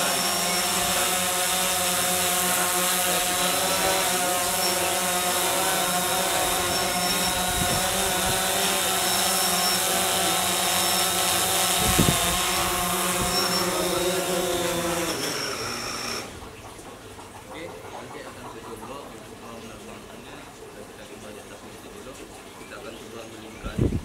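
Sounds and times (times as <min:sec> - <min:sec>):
drone motors winding down: 0:00.0 - 0:16.8
drone propellers buzzing: 0:00.0 - 0:16.9.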